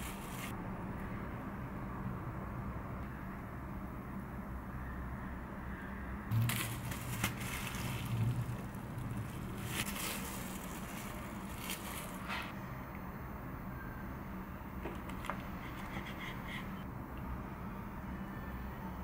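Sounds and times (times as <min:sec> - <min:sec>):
plastic-wrapped mat crinkling: 0:00.0 - 0:00.5, 0:06.3 - 0:12.5
low steady hum: 0:00.0 - 0:19.0.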